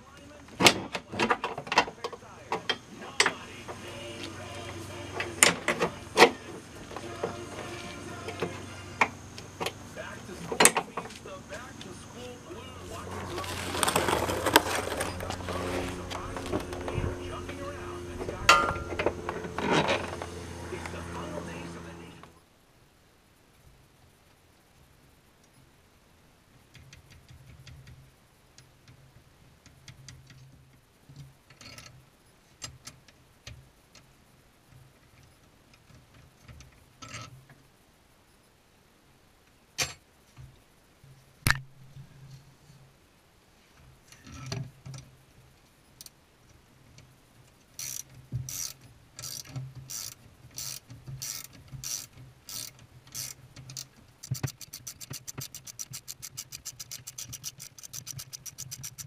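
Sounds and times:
metal clicks: 47.0 - 59.0
ratchet wrench clicking: 47.8 - 59.0.

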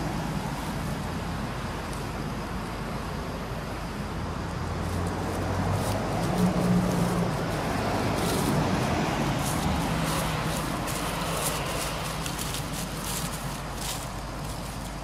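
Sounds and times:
vehicle engine passing by: 4.1 - 15.0.

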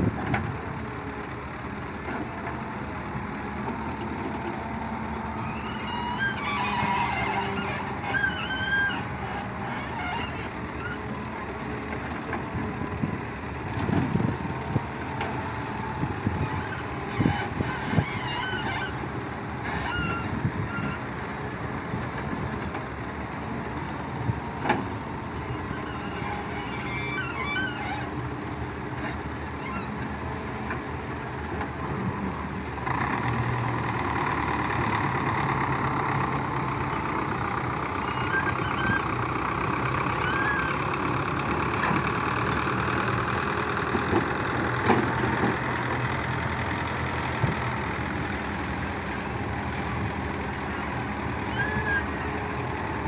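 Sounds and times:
excavator diesel engine: 0.0 - 53.0
short high-pitched squeals: 5.2 - 11.2, 16.2 - 19.0, 19.6 - 21.1, 25.4 - 28.1, 37.9 - 39.3, 40.0 - 40.9, 50.8 - 52.2.

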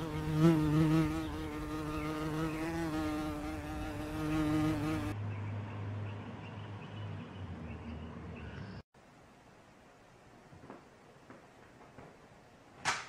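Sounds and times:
flying insect buzzing: 0.0 - 5.2.

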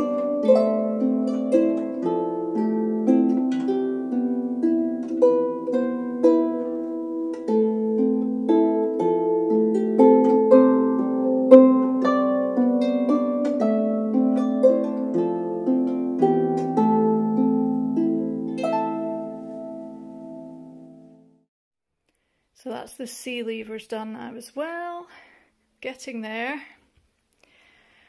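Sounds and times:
harp music: 0.0 - 21.5.

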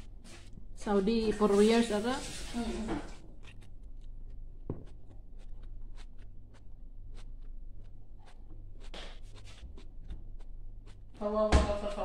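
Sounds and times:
steady low hum: 3.0 - 12.0.

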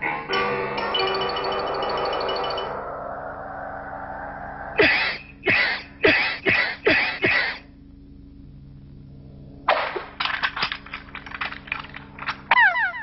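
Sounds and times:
rattling clatter of clicks: 10.2 - 12.5.

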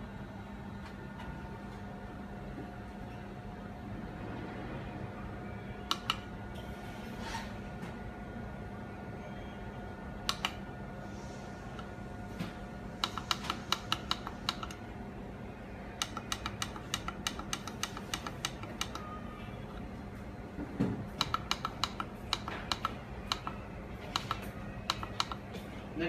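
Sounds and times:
steady hum: 0.0 - 26.0
push buttons clicking: 5.8 - 6.3, 10.2 - 10.6, 13.0 - 14.8, 15.9 - 19.2, 21.1 - 25.5.

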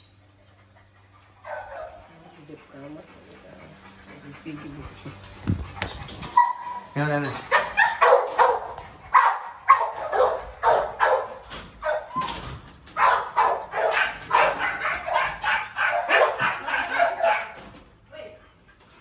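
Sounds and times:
dog barking rapidly: 6.4 - 12.1, 13.0 - 17.6.

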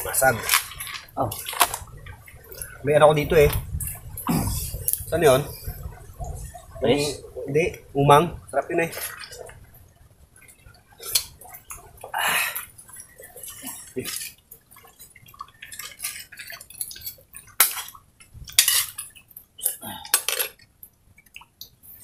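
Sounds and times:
dishes clinking and scraping: 18.5 - 19.3, 20.1 - 20.6.

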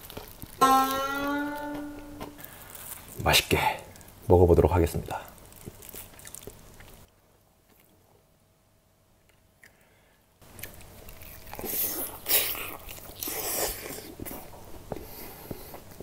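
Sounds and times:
chewing close to microphone: 0.0 - 0.6, 5.4 - 7.1, 10.4 - 16.0
fried chicken coating crunching: 0.0 - 3.1, 4.9 - 7.1.

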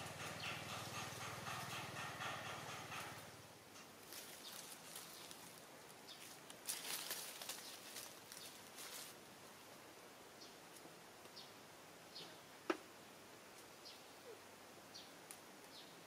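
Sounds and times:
rustling and scratching of fur: 3.0 - 9.8.

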